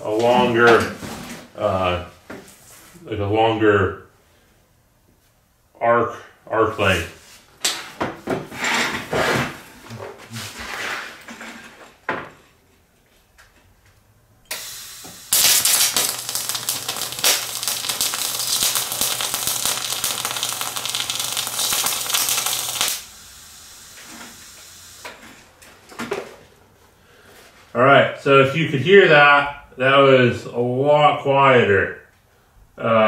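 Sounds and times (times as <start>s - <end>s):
welding arc hissing and crackling: 14.5s - 25.5s.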